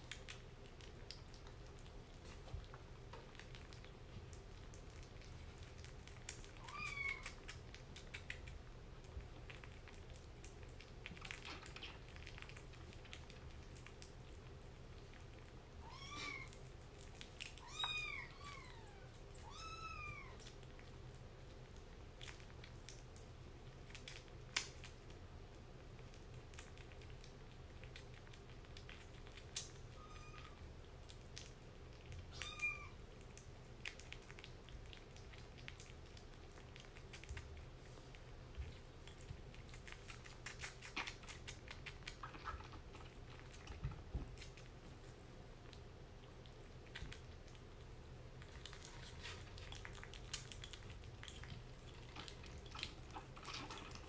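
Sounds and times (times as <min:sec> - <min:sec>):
kitten eating smacking: 0:00.0 - 0:54.0
kitten mewing: 0:06.6 - 0:07.6, 0:15.8 - 0:16.6, 0:32.3 - 0:33.0.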